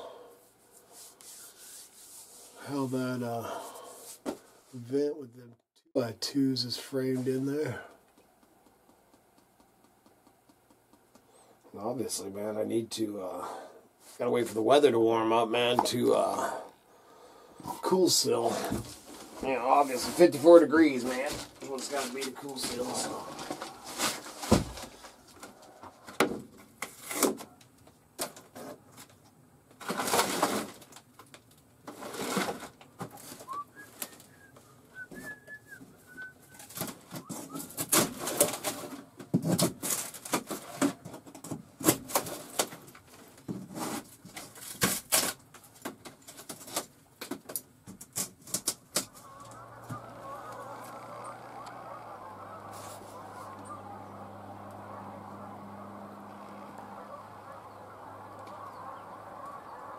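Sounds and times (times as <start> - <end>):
steady hiss with low hum: 0.0 - 59.9
wood paneling cracking and snapping: 21.2 - 34.2, 36.6 - 49.2.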